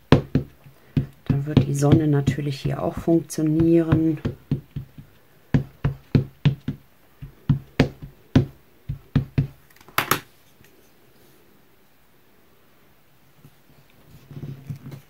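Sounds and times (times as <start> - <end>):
rubber stamp knocking: 0.0 - 10.3.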